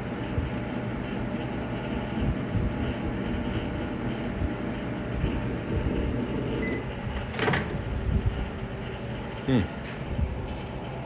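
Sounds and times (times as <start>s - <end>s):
microwave oven humming: 0.0s - 11.0s
microwave beep: 6.5s - 6.9s.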